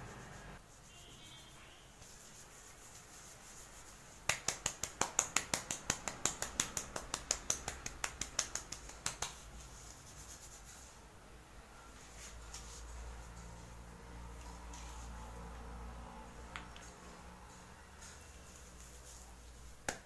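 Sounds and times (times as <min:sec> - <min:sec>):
hands slapping oiled hair: 0:04.2 - 0:09.6, 0:18.5 - 0:20.0.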